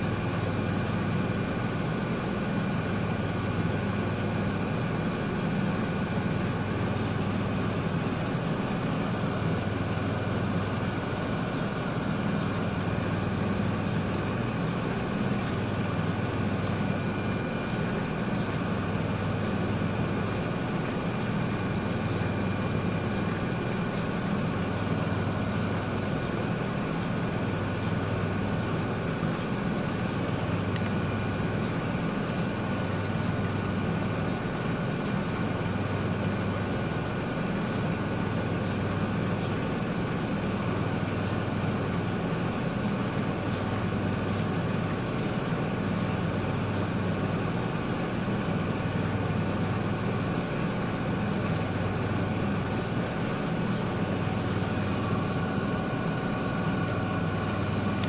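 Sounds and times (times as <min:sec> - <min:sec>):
washing machine motor hum: 0:00.0 - 0:58.0.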